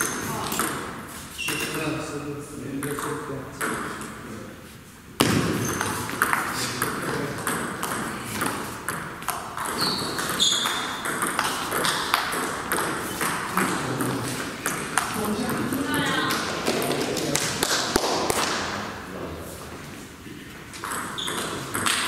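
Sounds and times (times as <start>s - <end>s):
short high squeaks: 1.3s - 1.8s, 9.7s - 11.0s
table tennis ball clicking: 6.2s - 13.7s.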